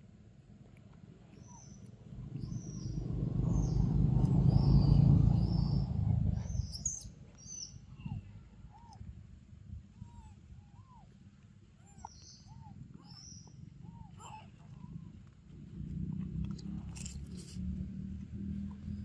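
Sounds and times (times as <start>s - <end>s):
birds chirping: 1.3s - 9.0s, 11.8s - 15.2s
low rumble: 1.6s - 10.7s, 12.4s - 19.0s
lower arching bird calls: 11.8s - 15.1s.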